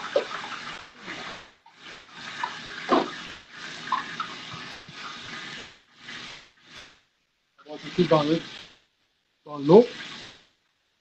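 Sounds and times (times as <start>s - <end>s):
fat sizzling in a frying pan: 0.0s - 11.0s.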